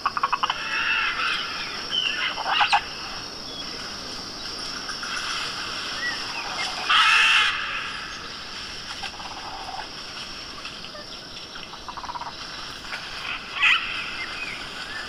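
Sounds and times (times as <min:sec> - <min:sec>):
animal calls: 0:00.0 - 0:03.8, 0:04.6 - 0:15.0
steady high hiss: 0:00.0 - 0:15.0.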